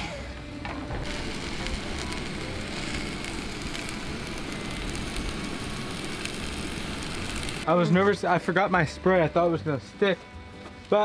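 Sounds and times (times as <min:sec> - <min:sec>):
meat sizzling in a frying pan: 0:01.0 - 0:07.6.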